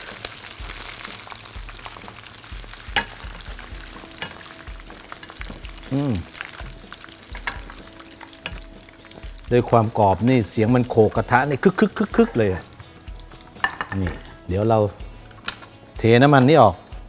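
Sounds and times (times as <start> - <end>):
food sizzling in hot oil: 0.0 - 17.0
crisp wings knocking on pan: 2.7 - 5.8, 6.4 - 9.4, 13.0 - 14.2
utensils clinking against wok: 4.1 - 4.5, 12.8 - 14.3, 15.3 - 15.8.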